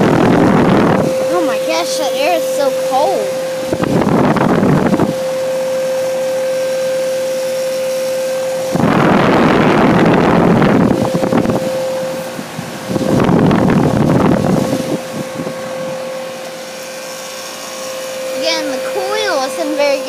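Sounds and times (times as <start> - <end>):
wind buffeting microphone: 0.0 - 5.4, 8.6 - 16.4
fan air blowing: 0.0 - 20.0
heat pump humming: 0.0 - 20.0.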